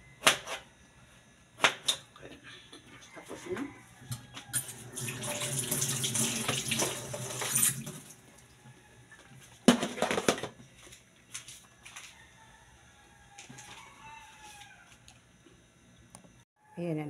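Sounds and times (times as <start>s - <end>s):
faucet running into steel sink: 4.6s - 8.2s.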